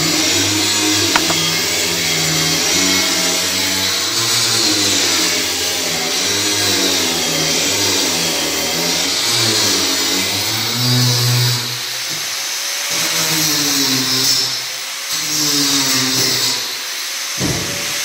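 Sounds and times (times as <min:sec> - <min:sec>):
electric power tool motor: 0:01.2 - 0:01.4.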